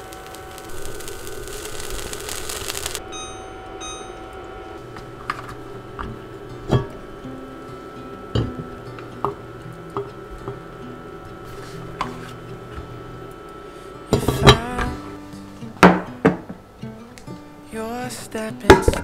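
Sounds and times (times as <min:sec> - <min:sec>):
soft background music: 0:05.7 - 0:19.0.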